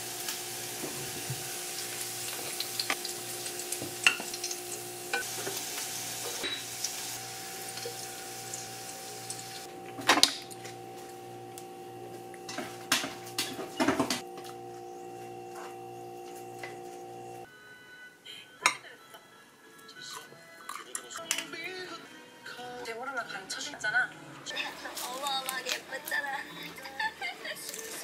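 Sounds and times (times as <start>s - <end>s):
pork sizzling in a pan: 0.0s - 14.4s
dishes clattering on stone counter: 6.2s - 6.7s, 12.5s - 14.2s.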